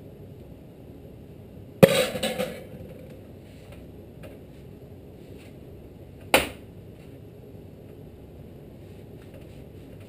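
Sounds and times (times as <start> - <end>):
metal part knocking on workbench: 1.8 - 3.0.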